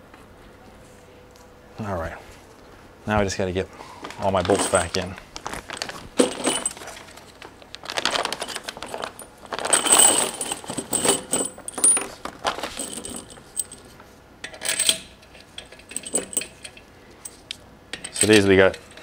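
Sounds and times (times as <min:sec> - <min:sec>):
metal bolts clinking in plastic bag: 0:04.1 - 0:13.9, 0:15.6 - 0:17.4, 0:18.0 - 0:18.7.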